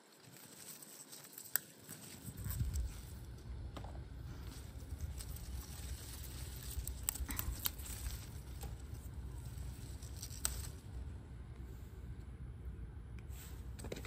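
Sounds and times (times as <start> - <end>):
plant leaves rustling: 0.0 - 11.9
sharp snaps of stems: 6.6 - 8.9, 9.9 - 10.8.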